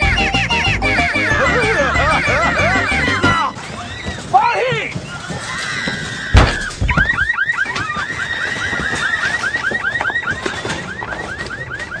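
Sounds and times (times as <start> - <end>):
car alarm chirping: 0.0 - 3.6, 6.3 - 12.0.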